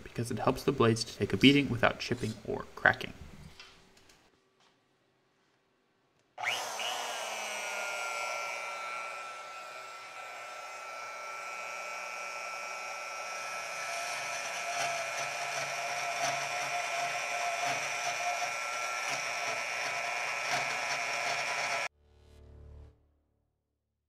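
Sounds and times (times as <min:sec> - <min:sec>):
band saw motor whine: 0:06.4 - 0:21.9
saw blade cutting steel bar: 0:13.6 - 0:21.9.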